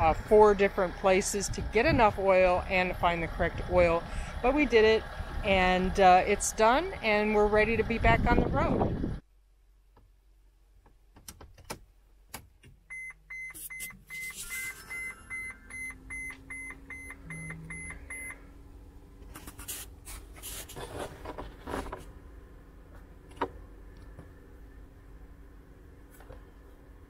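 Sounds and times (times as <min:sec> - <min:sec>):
dashboard warning chime beeping: 0:07.1 - 0:07.8, 0:12.8 - 0:18.6.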